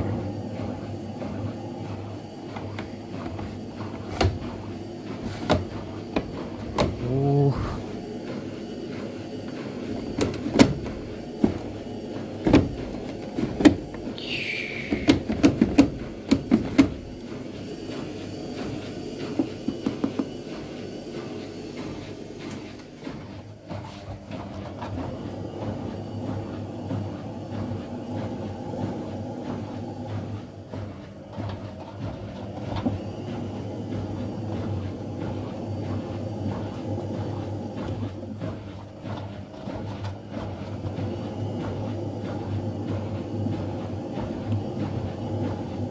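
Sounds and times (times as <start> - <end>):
washing machine clicks and knocks: 0.0 - 7.5, 9.2 - 14.2, 14.9 - 20.8
washing machine drum motor humming: 0.0 - 45.9.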